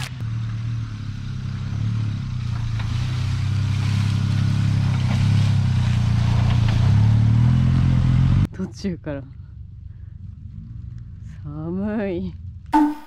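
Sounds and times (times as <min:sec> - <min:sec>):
car engine running under load: 0:00.0 - 0:08.5.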